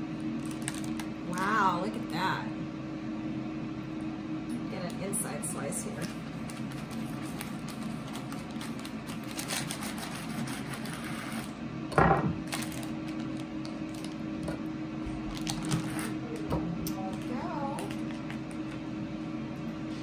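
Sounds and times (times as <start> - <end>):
steady low hum: 0.0 - 20.0
bread knife sawing through crust: 9.3 - 11.5.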